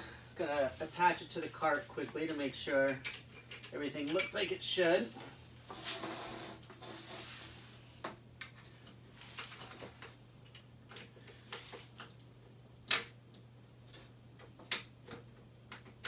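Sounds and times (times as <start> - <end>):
steady low hum: 0.0 - 15.6
plastic pipes clicking and knocking: 2.0 - 4.4, 12.9 - 16.0.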